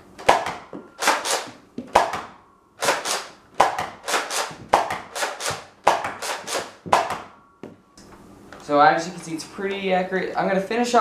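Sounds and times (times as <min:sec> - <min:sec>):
toy blaster firing: 0:00.3 - 0:02.2, 0:02.8 - 0:07.1.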